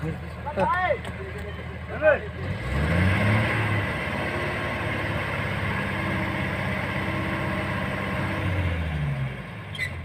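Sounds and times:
truck engine idling: 0:00.0 - 0:02.6.

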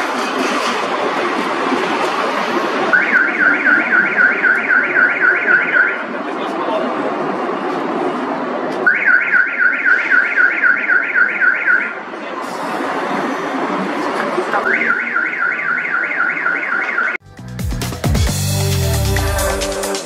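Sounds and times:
jet engines roaring: 0:00.0 - 0:09.3
car alarm warbling siren: 0:02.9 - 0:06.1, 0:08.8 - 0:12.1, 0:14.6 - 0:17.2.

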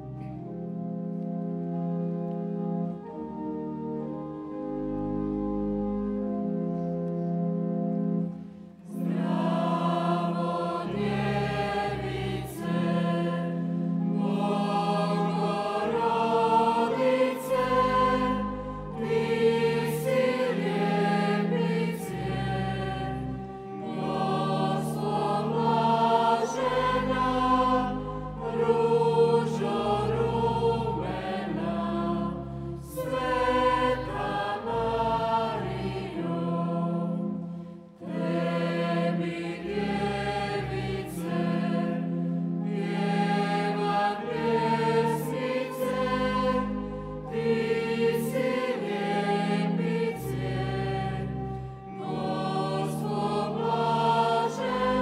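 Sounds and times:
organ-toned keyboard: 0:00.0 - 0:55.0
choir singing a hymn: 0:07.6 - 0:55.0.

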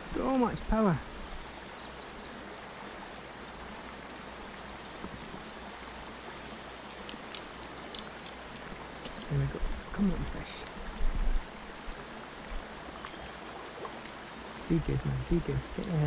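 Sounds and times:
river water flowing: 0:00.0 - 0:16.0
faint high ticks: 0:07.0 - 0:09.3.

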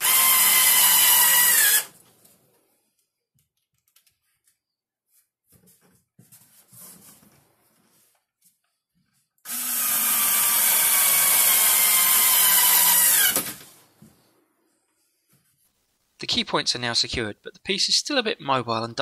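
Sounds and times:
cordless drill drilling into wood: 0:00.0 - 0:02.0, 0:09.5 - 0:13.8
soft handling sounds: 0:02.0 - 0:09.4.

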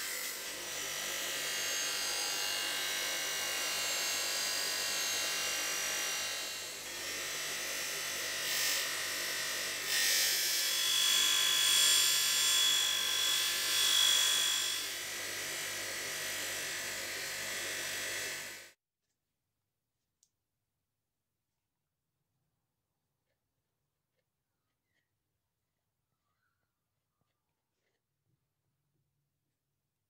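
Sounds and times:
bench grinder motor hum: 0:00.0 - 0:18.8.

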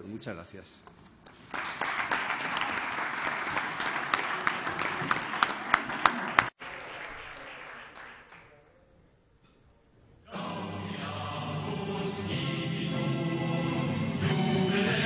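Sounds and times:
audience applauding: 0:01.3 - 0:08.6.

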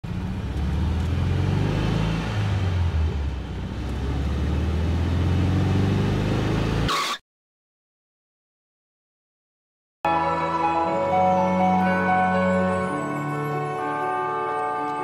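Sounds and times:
vehicle engine running: 0:00.0 - 0:06.4.

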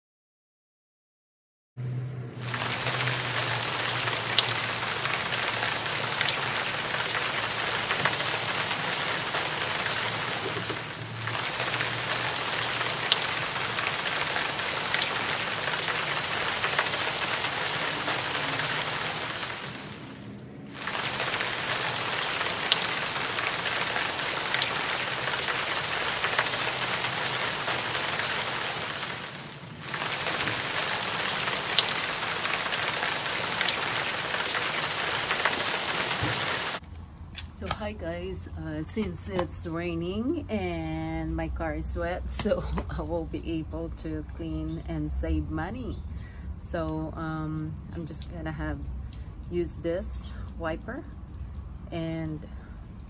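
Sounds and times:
rain falling on pavement: 0:02.3 - 0:36.9, 0:46.7 - 0:53.0.

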